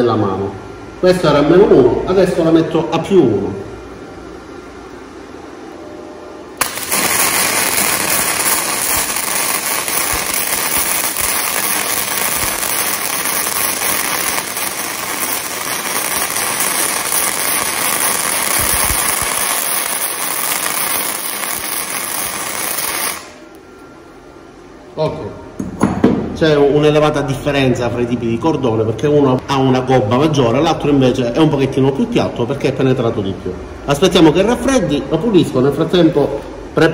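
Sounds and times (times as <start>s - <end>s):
welding arc crackling and sizzling: 6.6s - 23.6s.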